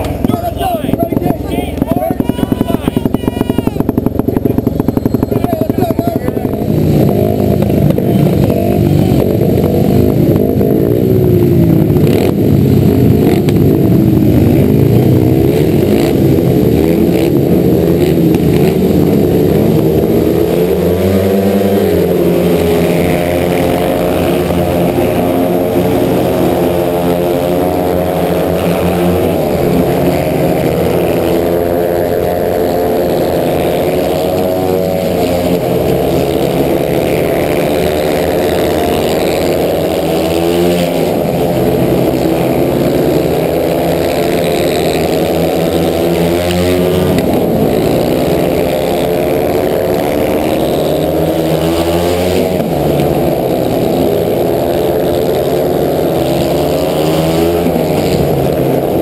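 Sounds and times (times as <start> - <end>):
motorcycles revving: 0.0 - 59.0.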